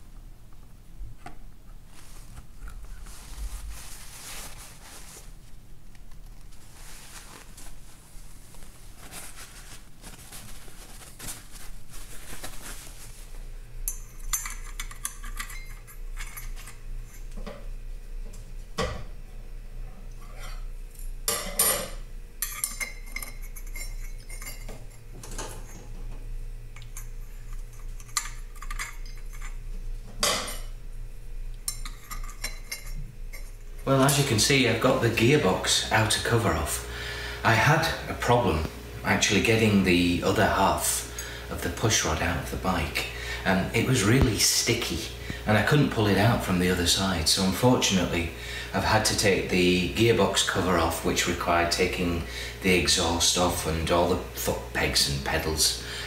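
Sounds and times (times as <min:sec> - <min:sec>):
soft handling noises: 0:01.2 - 0:17.5.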